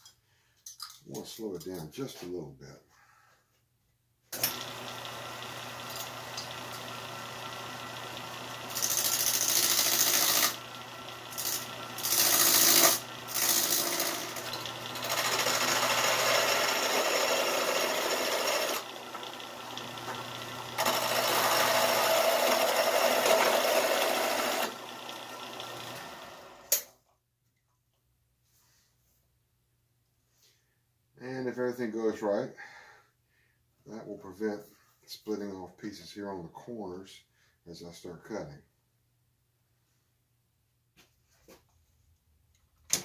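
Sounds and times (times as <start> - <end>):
lathe motor hum: 4.4 - 26.7
hand tool rasping on wood: 20.8 - 24.7.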